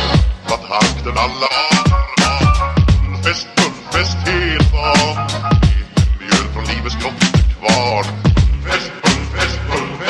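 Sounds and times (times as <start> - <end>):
deep kick drums: 1.9 - 3.2, 4.6 - 6.3, 8.2 - 8.7.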